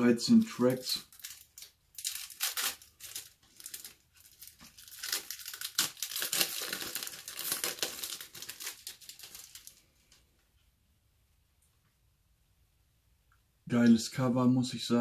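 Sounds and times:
plastic wrap crinkling: 0.2s - 10.2s.

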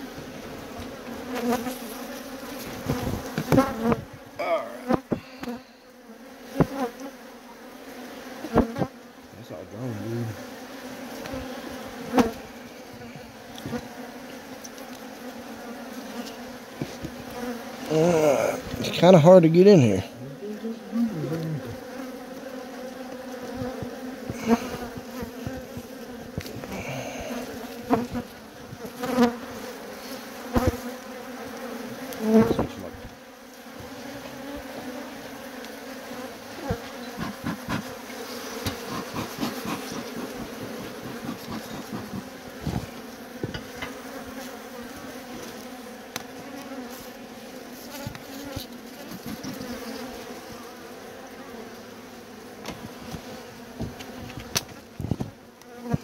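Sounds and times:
bees buzzing: 0.0s - 56.0s
knocks against wood: 2.9s - 4.0s, 38.6s - 44.0s, 53.8s - 56.0s.

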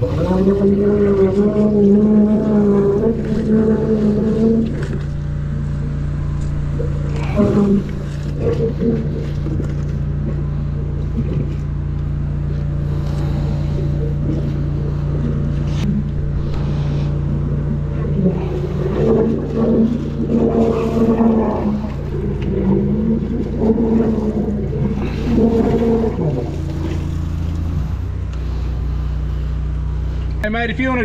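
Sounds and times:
water jetting down drain: 0.0s - 28.3s
drain jetter engine droning: 0.0s - 31.0s.

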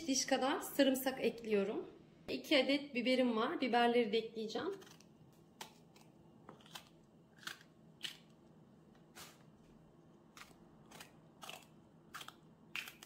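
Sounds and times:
knife cutting pepper: 4.7s - 8.2s.

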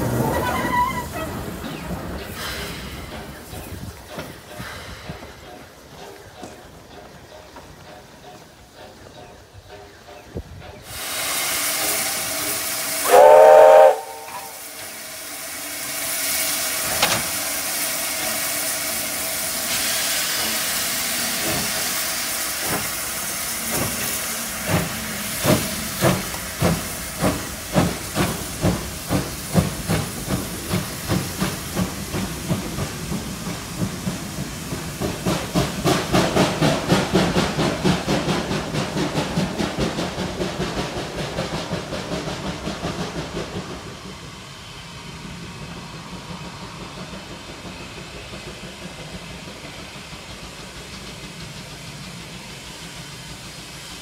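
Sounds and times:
steam hissing: 0.0s - 54.0s
steam locomotive whistle: 11.5s - 15.3s.

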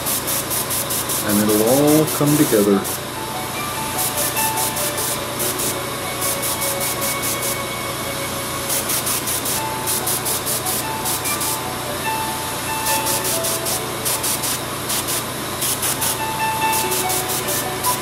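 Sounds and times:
airbrush spraying hiss: 0.0s - 2.0s, 2.8s - 7.8s, 8.5s - 11.6s, 12.8s - 18.0s.

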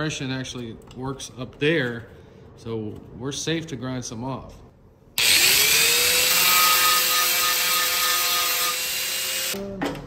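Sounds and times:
angle grinder grinding metal: 5.2s - 9.6s.

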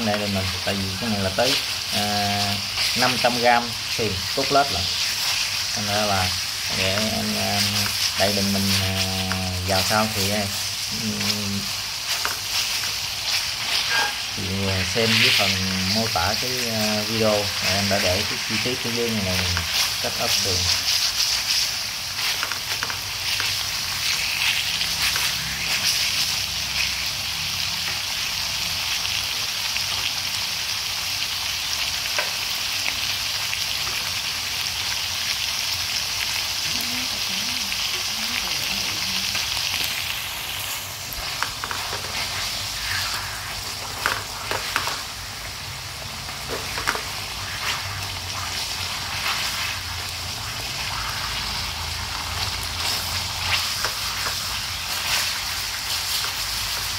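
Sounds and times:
meat sizzling in hot oil: 0.0s - 56.9s
oil popping: 39.3s - 56.9s.

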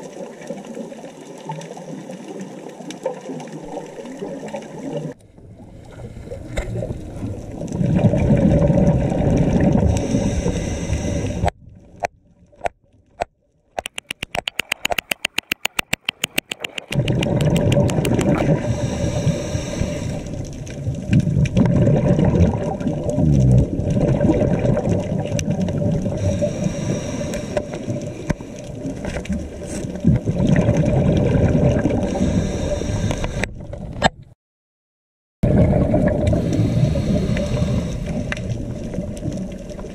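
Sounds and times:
underwater bubbles rushing: 0.0s - 12.5s, 13.8s - 34.0s, 35.4s - 39.9s
rapid clicks: 13.8s - 18.4s.

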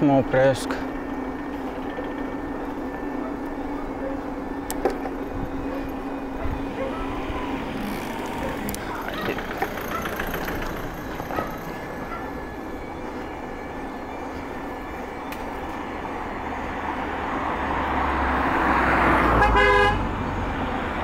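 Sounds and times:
bicycle road noise: 0.0s - 21.0s.

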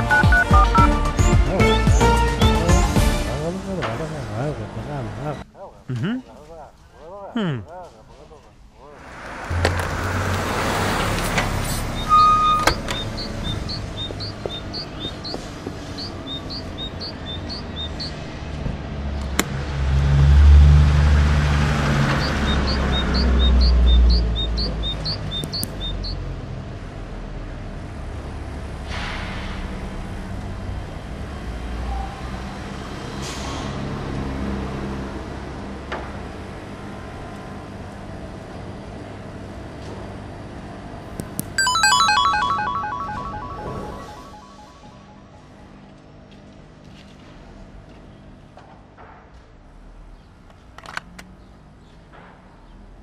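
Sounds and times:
electronic beeps: 0.0s - 0.9s, 11.9s - 18.1s, 41.6s - 45.5s
van engine rumbling: 8.9s - 28.8s
bird chirps: 11.6s - 18.2s, 22.1s - 26.2s.

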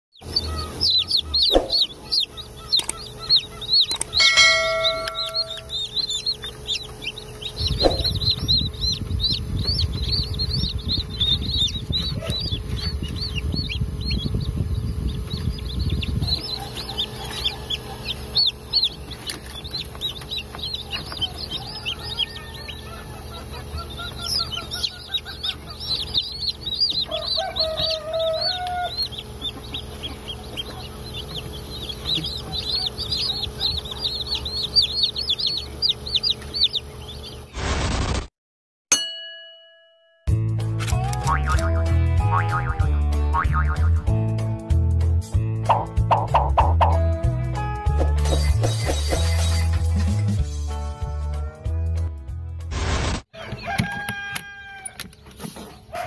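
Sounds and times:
chicks peeping: 0.2s - 37.5s, 45.6s - 47.0s, 47.9s - 50.4s
low rumble: 4.4s - 16.8s.

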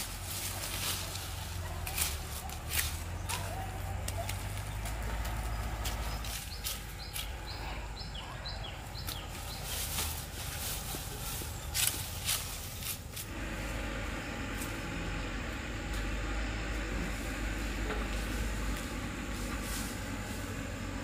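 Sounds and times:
steady low rumble: 0.0s - 21.0s
small bird chirping: 4.5s - 10.3s.

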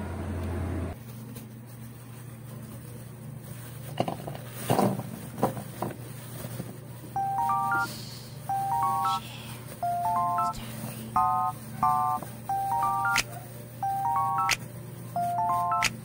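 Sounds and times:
electronic rising beeps: 7.2s - 7.9s, 8.5s - 9.2s, 9.8s - 10.6s, 11.2s - 13.2s, 13.8s - 14.6s, 15.2s - 15.9s.

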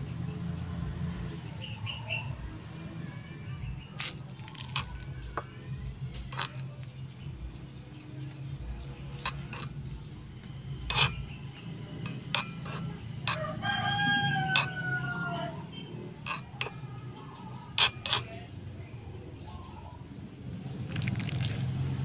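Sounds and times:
spatula scraping metal wok: 6.2s - 7.0s, 8.8s - 10.0s, 10.6s - 18.5s
rooster crowing: 13.3s - 15.6s.

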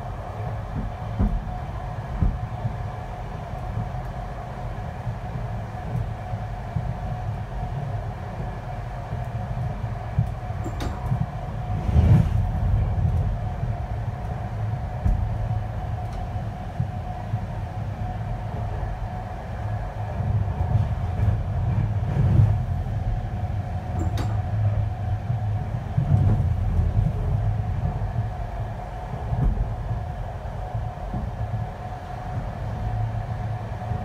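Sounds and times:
train wheels rumbling on track: 0.0s - 34.0s.

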